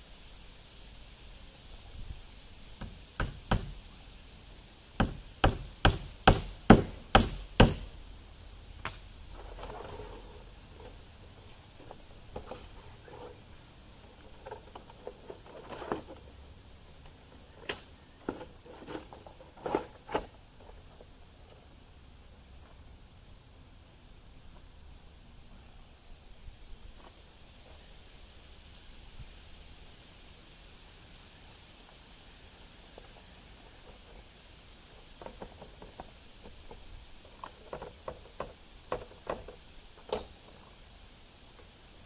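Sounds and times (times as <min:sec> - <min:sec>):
hammer driving nails into wood: 0:05.0 - 0:07.9.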